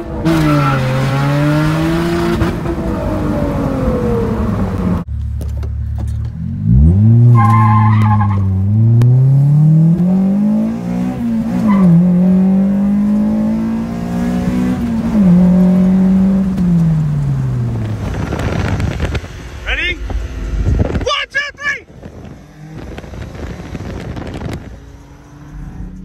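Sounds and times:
car engine accelerating: 0.0 - 21.0, 21.8 - 26.0
tyre squeal: 7.3 - 8.6.

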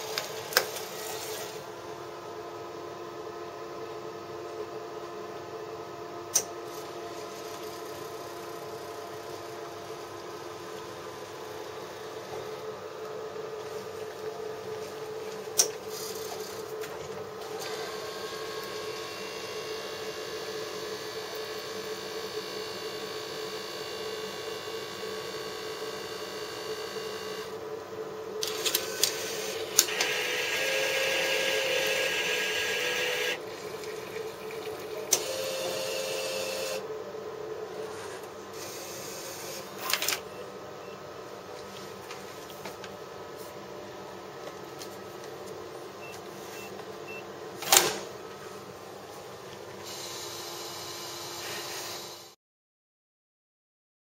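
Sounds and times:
vending machine motor hum: 0.0 - 52.3.

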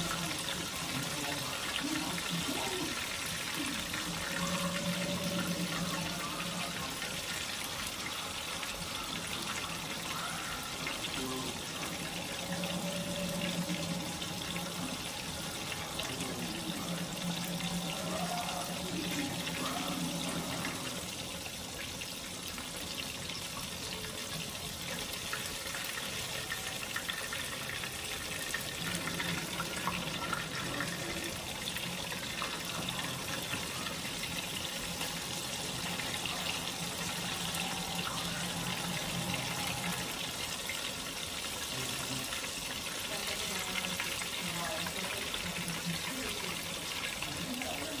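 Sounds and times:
fish frying in oil: 0.0 - 48.0.

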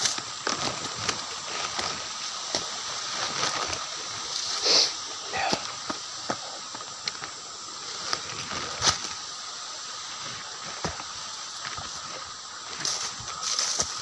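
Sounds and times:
twigs cracking: 0.0 - 4.5
footsteps crunching through dry grass: 0.0 - 14.0
steady background hiss: 0.0 - 14.0.

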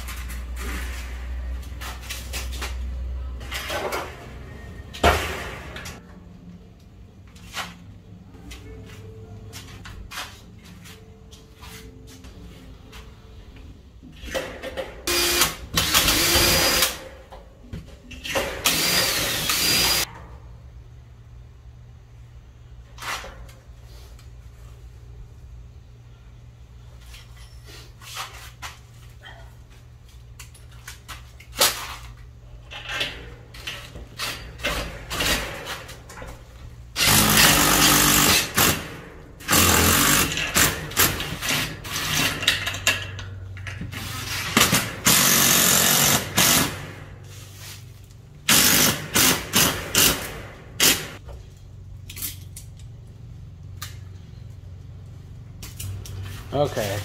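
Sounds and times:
handheld power tool running: 15.1 - 17.0, 18.6 - 20.1, 44.6 - 46.8, 48.5 - 51.1.

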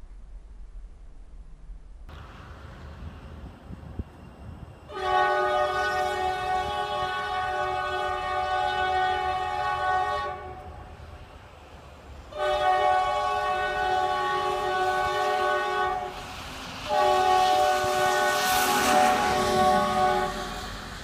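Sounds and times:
locomotive air horn blasts: 4.9 - 10.9, 12.3 - 16.2, 16.9 - 20.7.

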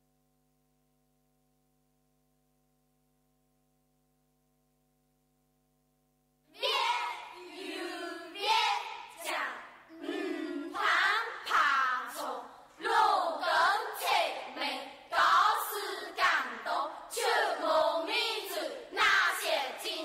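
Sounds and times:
faint steady hum: 0.0 - 20.0
group of voices chanting: 6.6 - 20.0.

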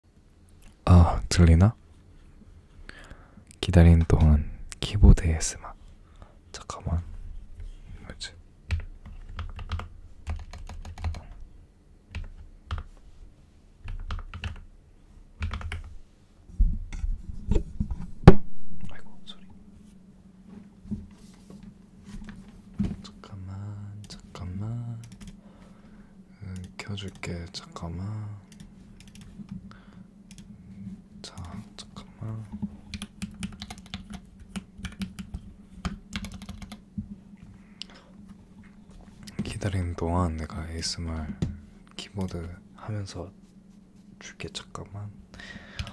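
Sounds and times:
keyboard typing clicks: 8.7 - 11.3, 25.0 - 25.4, 28.5 - 29.3, 32.9 - 36.8.

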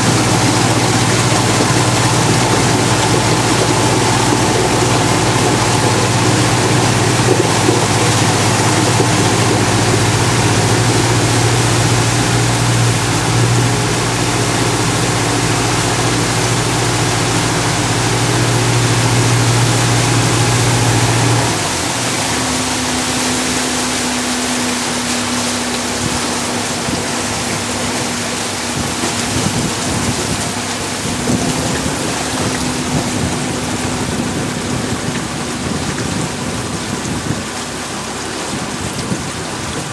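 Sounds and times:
boat engine humming: 0.0 - 39.9
higher engine tone: 0.0 - 39.9
wind and water rushing: 0.0 - 39.9.

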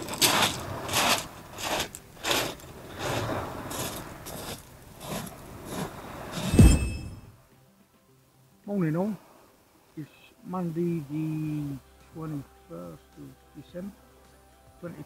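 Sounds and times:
footsteps crunching on shingle: 0.0 - 6.2.

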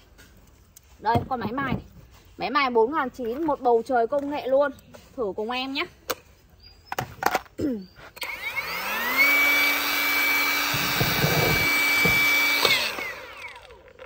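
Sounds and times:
angle grinder whine: 8.2 - 14.0.

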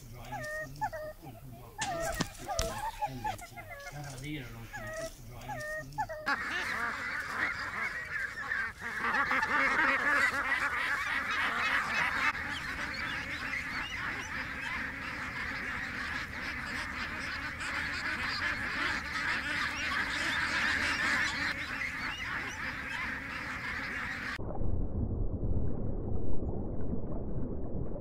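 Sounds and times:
ducks quacking: 0.0 - 24.4
low rumble: 24.4 - 28.0.

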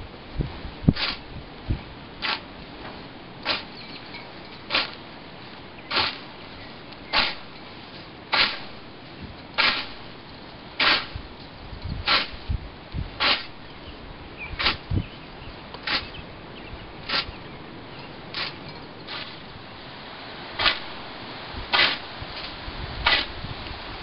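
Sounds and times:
scythe swishing through grass: 0.9 - 1.2, 2.2 - 2.4, 3.4 - 3.8, 4.7 - 5.0, 5.9 - 6.3, 7.1 - 8.8, 9.6 - 10.0, 10.8 - 11.2, 12.0 - 12.4, 13.2 - 13.6, 14.6 - 14.8, 15.8 - 16.1, 17.0 - 17.3, 18.4 - 19.4, 20.6 - 20.9, 21.7 - 23.3.

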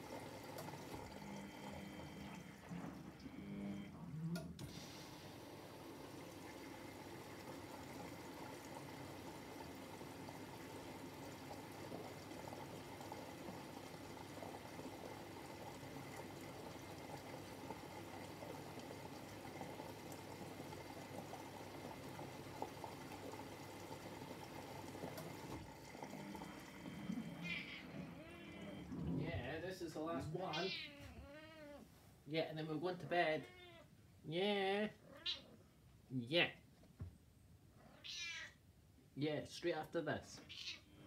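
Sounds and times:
water pouring in washing machine: 0.0 - 3.9, 4.6 - 29.5.

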